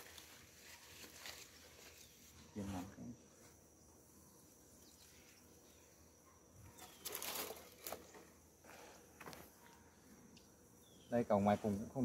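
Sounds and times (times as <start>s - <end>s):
scraping rustle of wooden box: 6.8s - 8.3s.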